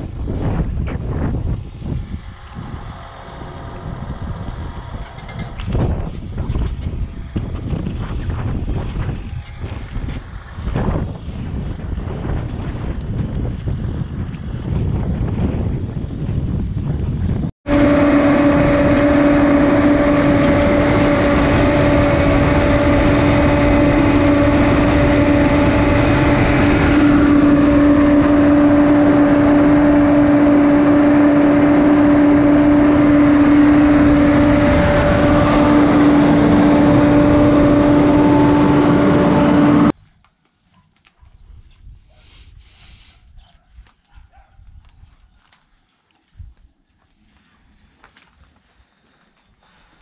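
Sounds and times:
steady machine whine: 0.0 - 13.0, 17.6 - 39.9
crop sprayer engine running: 1.0 - 14.6, 17.7 - 39.9.

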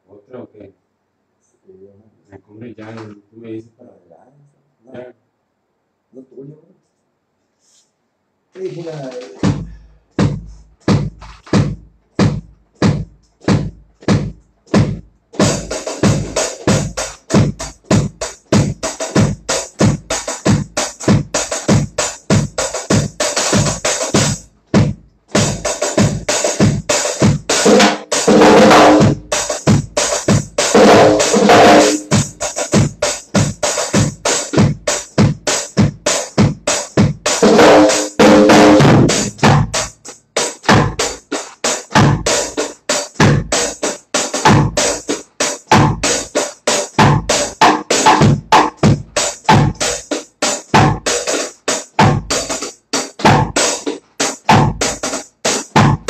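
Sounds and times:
reggae drum kit: 8.5 - 56.0.

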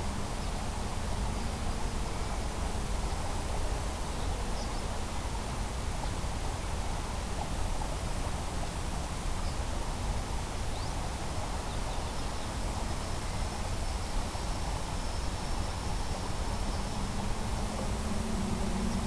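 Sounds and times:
wind rumbling on microphone: 0.0 - 19.0.

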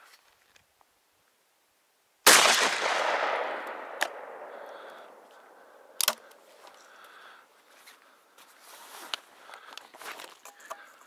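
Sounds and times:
shotgun shot: 2.3 - 5.2
sharp clicks: 6.0 - 6.4.

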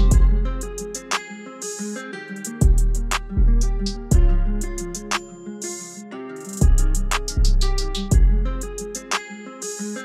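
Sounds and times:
deep bass notes: 0.0 - 0.6, 2.6 - 5.0, 6.6 - 8.5
guitar music over a beat: 0.0 - 10.0.

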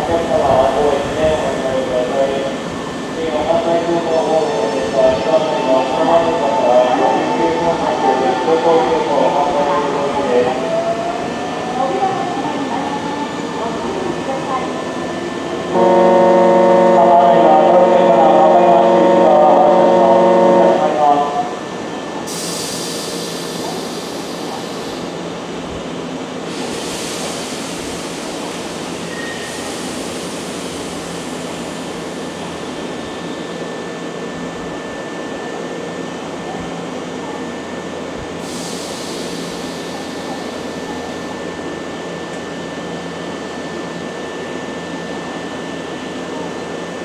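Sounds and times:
electric train humming and whining: 0.0 - 47.0
air hiss: 22.3 - 25.1, 26.4 - 28.9, 38.4 - 40.7.

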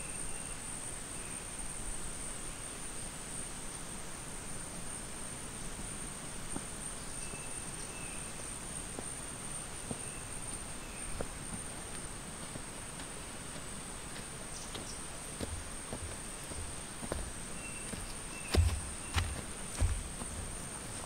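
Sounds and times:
constant hiss: 0.0 - 21.0
insects droning: 0.0 - 21.0
faint chirps: 14.4 - 21.0.

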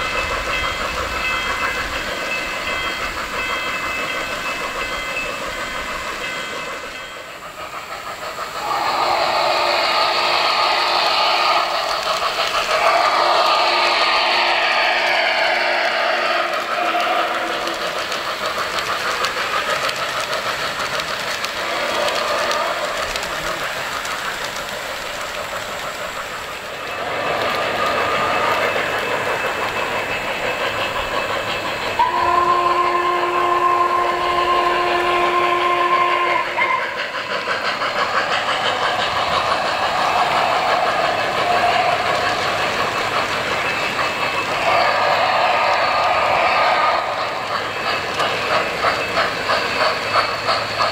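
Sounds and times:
model steam train running sounds: 0.0 - 50.9
train whistle blast: 8.6 - 11.8, 12.8 - 17.7, 32.0 - 37.1.

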